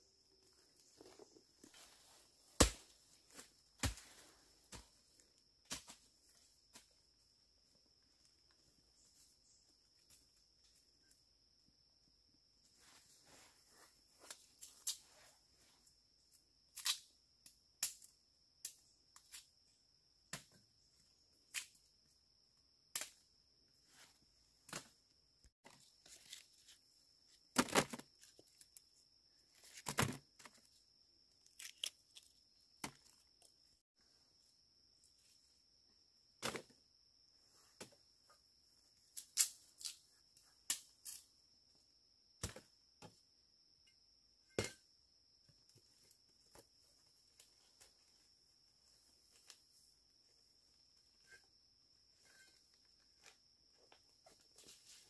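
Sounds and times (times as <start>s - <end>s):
bamboo shoots snapping: 16.7s - 17.1s, 31.4s - 32.3s, 39.2s - 40.0s.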